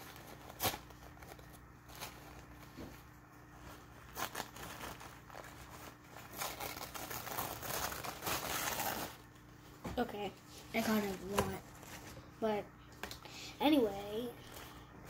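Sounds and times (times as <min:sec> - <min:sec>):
paper tissue crinkling: 0:00.0 - 0:09.6, 0:10.4 - 0:12.4.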